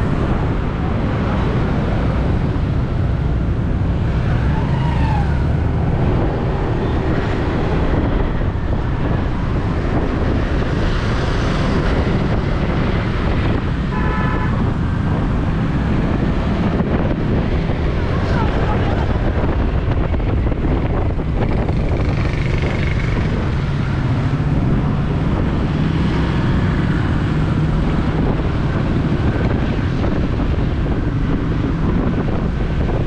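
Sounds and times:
street traffic rumble: 0:00.0 - 0:33.0
car horn toot: 0:13.9 - 0:14.6.

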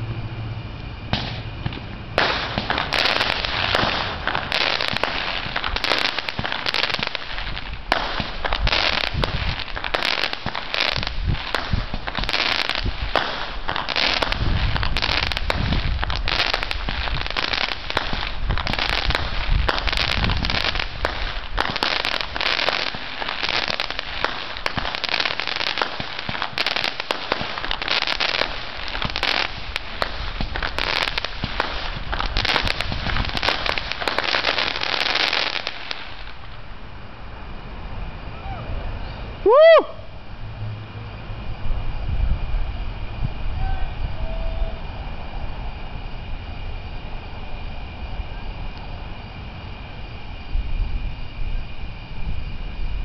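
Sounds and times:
fireworks bangs and pops: 0:01.1 - 0:36.7.

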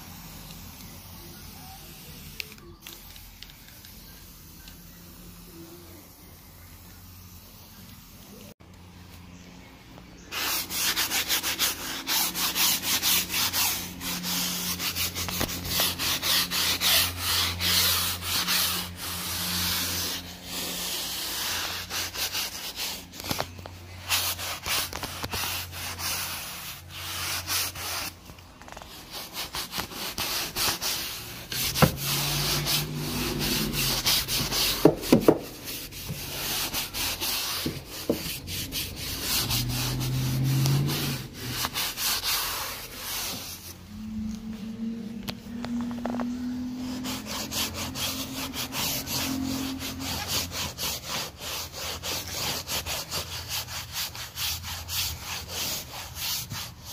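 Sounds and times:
brush scrubbing fabric: 0:10.3 - 0:44.0, 0:46.4 - 0:56.9
low hum: 0:43.8 - 0:49.9.

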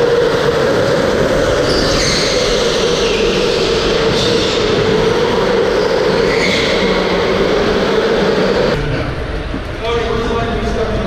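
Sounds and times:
go-kart motor whine: 0:00.0 - 0:09.4
road and tyre noise: 0:00.0 - 0:10.0
tyre squeals: 0:01.6 - 0:07.6.

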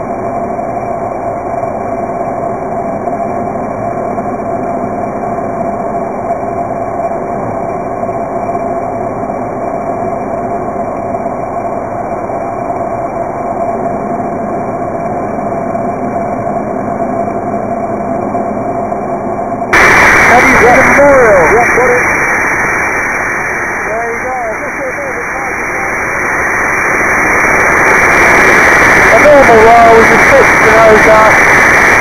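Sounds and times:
muffled aircraft engine drone: 0:00.0 - 0:32.0.

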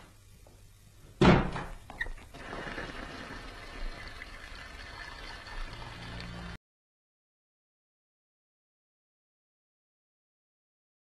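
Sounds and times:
loud thunk: 0:01.2 - 0:01.8
water running from tap: 0:02.3 - 0:06.6.

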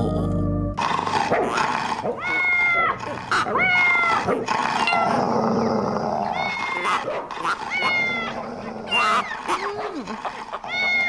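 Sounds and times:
cat meowing: 0:02.2 - 0:04.2, 0:06.3 - 0:07.0, 0:07.6 - 0:08.4, 0:10.7 - 0:11.0.

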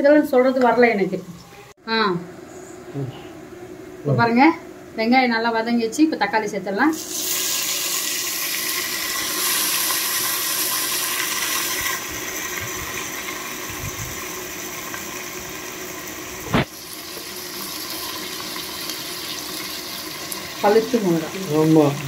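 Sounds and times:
vegetables sizzling in hot oil: 0:06.9 - 0:22.0.

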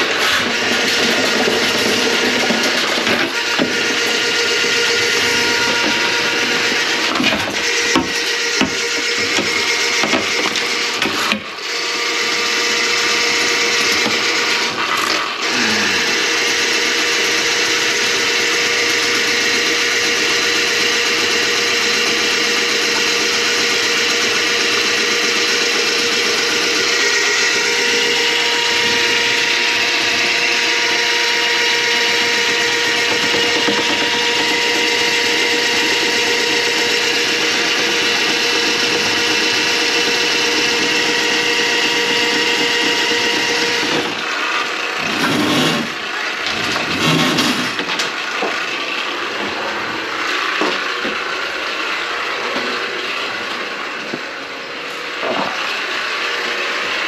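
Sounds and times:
drain-cleaning machine motor humming: 0:00.0 - 0:57.0
knocks and clatters: 0:00.3 - 0:11.5, 0:32.3 - 0:36.9.

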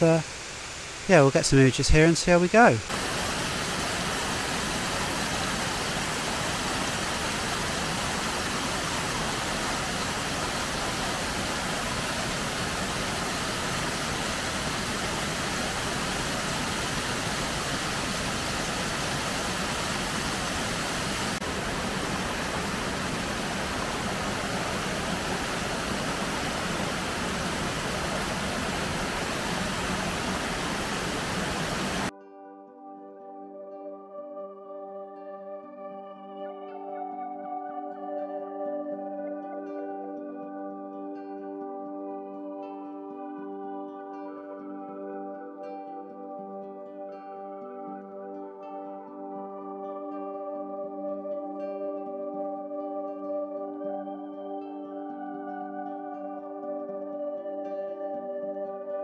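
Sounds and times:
waterfall rushing: 0:00.0 - 0:32.1.

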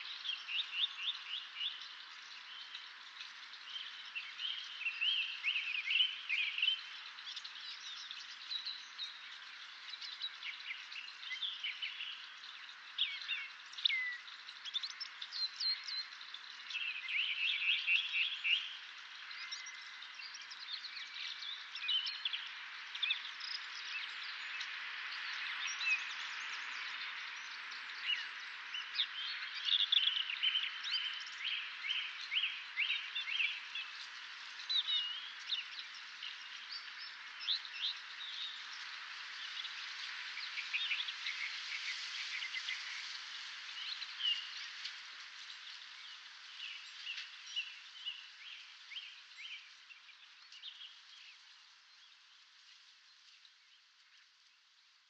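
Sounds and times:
songbirds singing and chirping: 0:00.0 - 0:55.0
steady hiss: 0:22.2 - 0:55.0.

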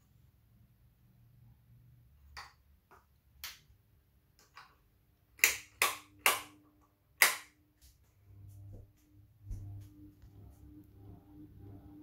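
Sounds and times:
faint motor hum: 0:08.0 - 0:12.0.

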